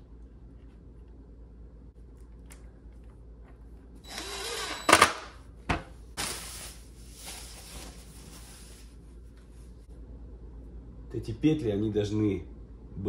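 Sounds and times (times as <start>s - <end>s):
cordless driver whirring: 4.0s - 5.2s
plastic wrapping rustling: 6.2s - 9.0s.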